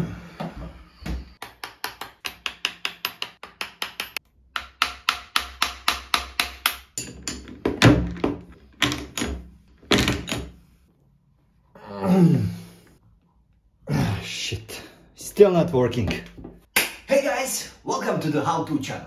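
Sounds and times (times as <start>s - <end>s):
hammer tapping metal: 1.4s - 7.4s.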